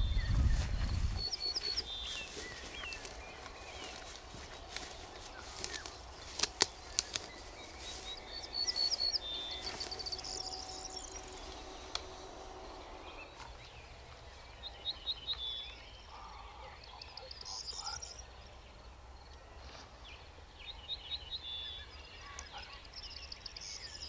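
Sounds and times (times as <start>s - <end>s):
footsteps rustling tall grass: 0.0s - 15.8s
small birds chirping: 0.0s - 24.0s
sharp clicks: 6.2s - 7.3s.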